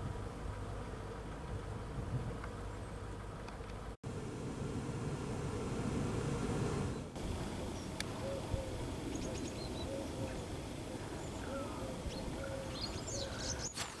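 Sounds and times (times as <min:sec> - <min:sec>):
wind rumble: 0:04.1 - 0:13.4
pigeon cooing: 0:07.4 - 0:13.7
high bird chirps: 0:11.1 - 0:13.8.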